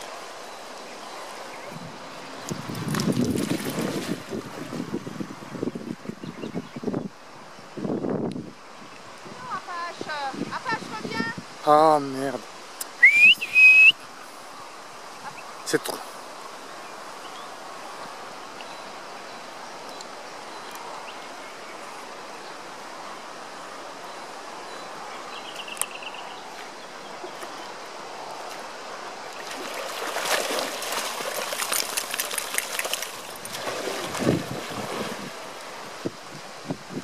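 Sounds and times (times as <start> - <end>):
gentle river water: 0.0 - 37.0
dog splashing in water: 2.6 - 4.2, 29.4 - 35.3.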